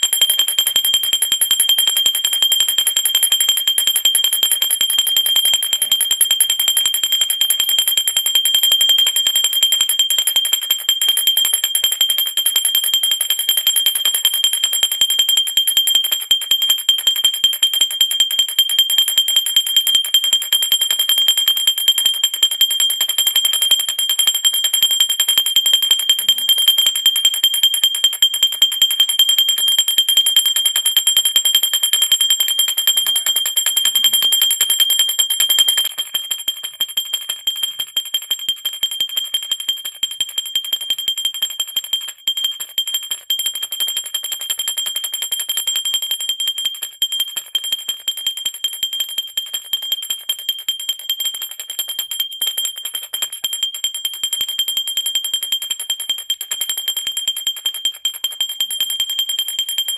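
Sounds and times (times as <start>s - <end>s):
hand bell ringing: 35.0s - 36.0s.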